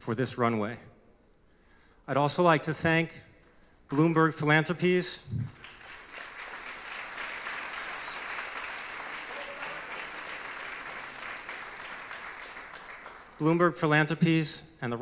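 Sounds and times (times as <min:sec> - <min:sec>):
audience applauding: 0:05.5 - 0:13.4.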